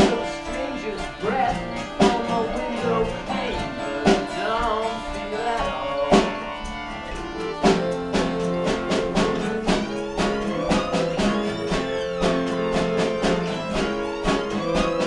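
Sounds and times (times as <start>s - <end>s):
fiddle melody: 0.0s - 15.0s
sharp percussive hits: 0.0s - 15.0s
strummed acoustic guitars: 0.0s - 15.0s.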